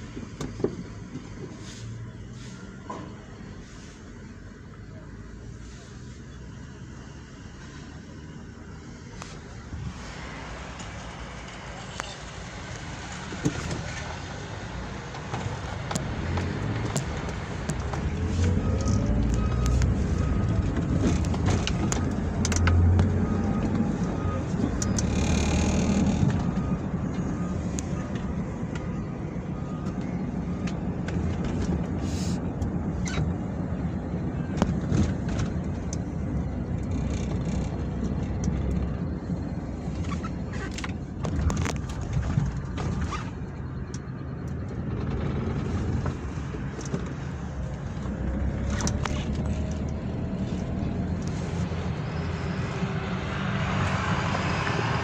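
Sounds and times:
engine and road rumble: 0.0 - 55.0.

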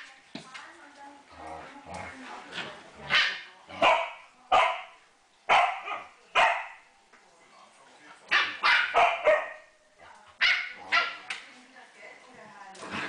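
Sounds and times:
dogs barking: 3.0 - 6.8, 8.3 - 9.7, 10.4 - 11.3.

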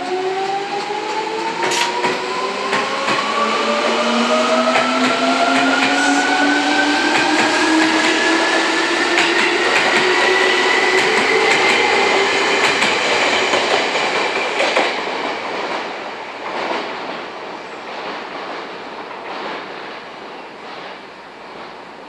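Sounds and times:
train wheels clicking over rail joints: 0.7 - 3.4, 7.0 - 17.2.

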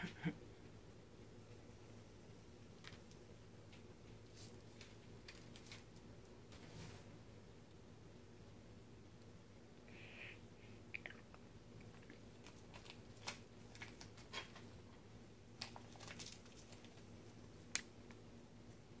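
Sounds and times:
tape crinkling: 2.8 - 6.1, 11.8 - 14.7, 15.6 - 18.2.

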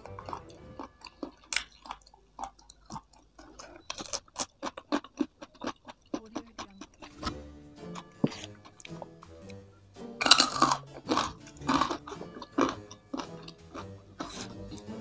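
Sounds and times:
person chewing food: 0.0 - 15.0.

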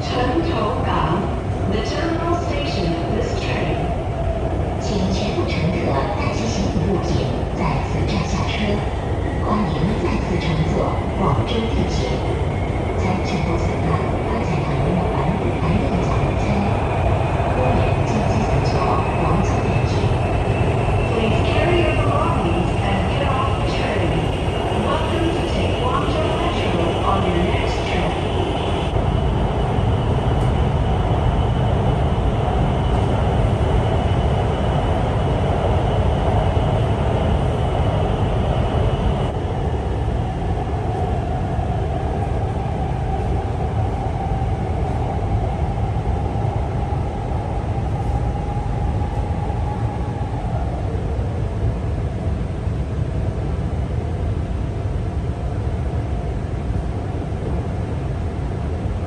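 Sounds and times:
train low rumble: 0.0 - 59.0
lower whine: 11.8 - 51.7.

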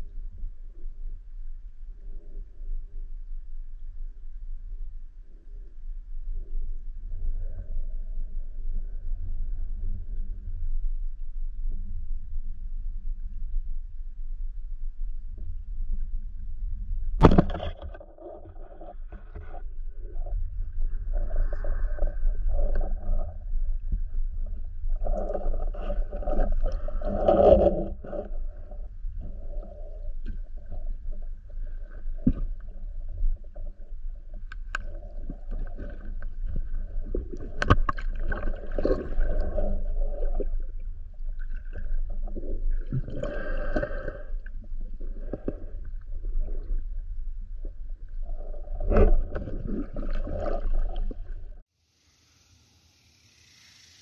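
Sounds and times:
muffled underwater rumble: 0.0 - 51.6
faint hiss: 51.7 - 54.0.

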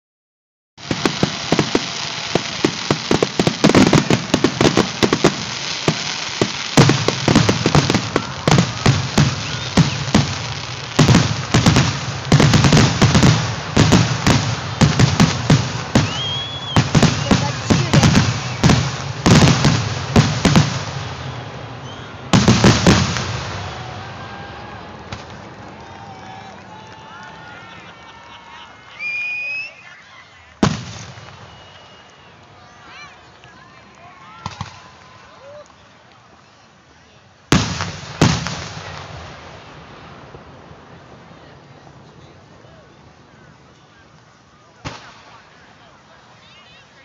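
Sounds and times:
fireworks bursting: 0.8 - 27.9, 28.9 - 33.6, 34.3 - 36.3, 37.5 - 47.0
background noise: 0.8 - 47.0.

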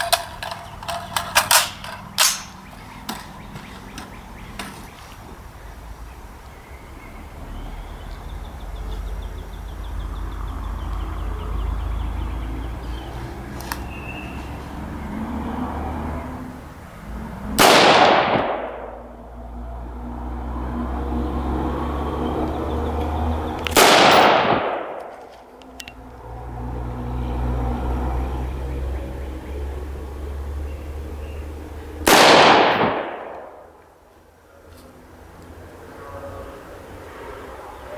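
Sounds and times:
rifle shots with echo: 17.6 - 19.0, 23.7 - 25.2, 32.0 - 33.7.

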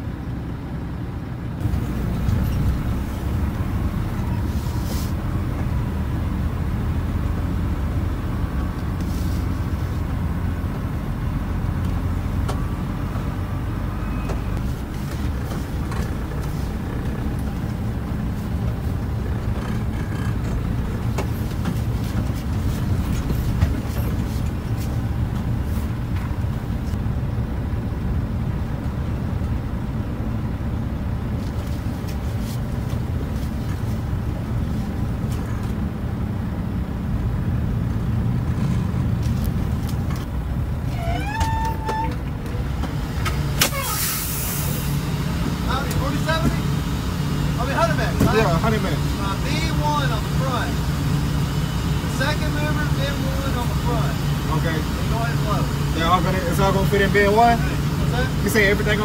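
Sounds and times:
diesel truck engine rumbling: 0.0 - 59.0.

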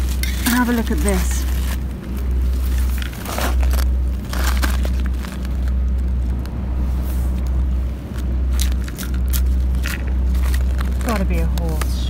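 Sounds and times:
pebbles crunching: 0.0 - 6.5
low unsteady rumble: 0.0 - 12.0.

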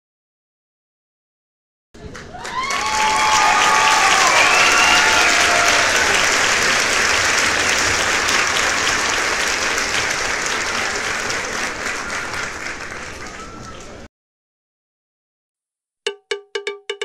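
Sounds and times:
crowd applauding: 2.0 - 14.1.

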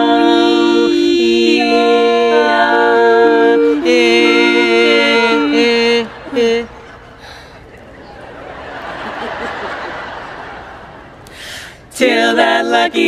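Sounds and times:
women singing close harmony: 0.0 - 7.0, 11.9 - 13.0.

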